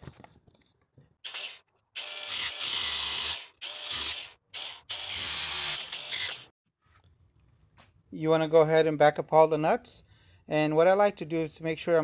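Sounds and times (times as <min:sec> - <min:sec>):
angle grinder cutting steel: 0:01.3 - 0:06.5.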